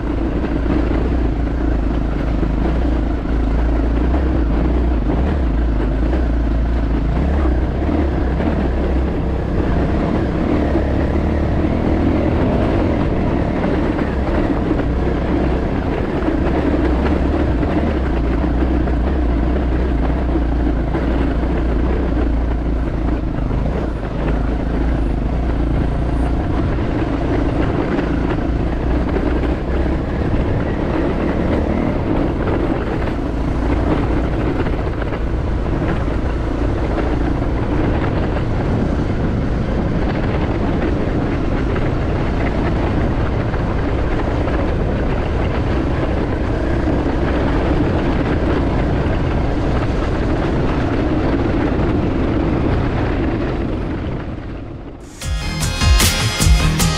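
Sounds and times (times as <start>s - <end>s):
wind rumble on microphone: 0.0s - 55.1s
dirt bike engine running: 0.0s - 56.9s.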